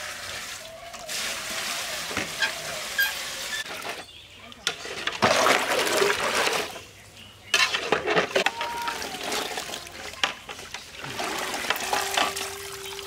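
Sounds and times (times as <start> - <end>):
water splashing in a pot: 8.8 - 13.0.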